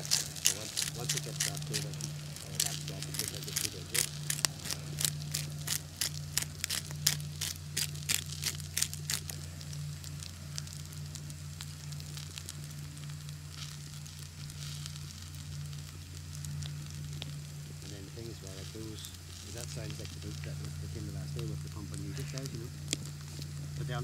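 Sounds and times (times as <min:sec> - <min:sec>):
wood fire crackling: 0:00.0 - 0:24.0.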